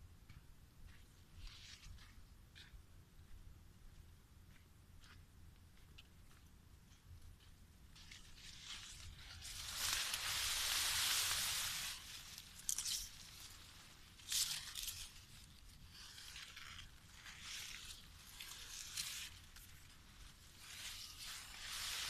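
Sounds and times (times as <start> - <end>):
leaves rustling against phone: 8.0 - 22.0.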